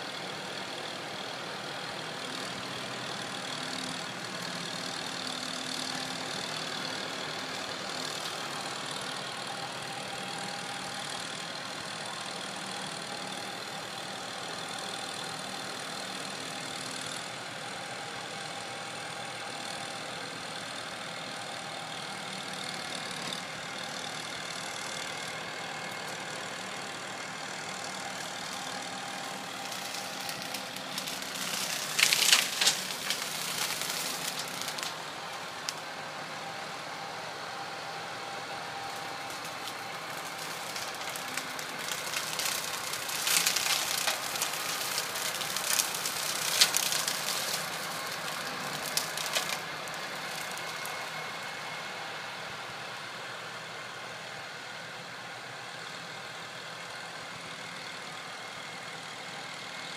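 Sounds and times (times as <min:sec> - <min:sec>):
tractor engine running: 0:00.0 - 0:54.6
brush mulcher crackling: 0:02.2 - 0:11.1, 0:25.1 - 0:51.8.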